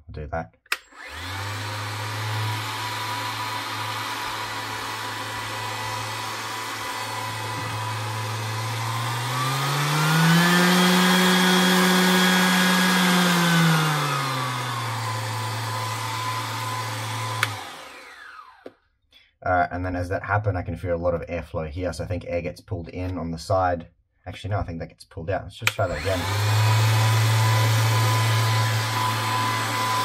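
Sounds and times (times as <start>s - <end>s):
random orbital sander running: 1.0s - 18.7s, 25.8s - 30.0s.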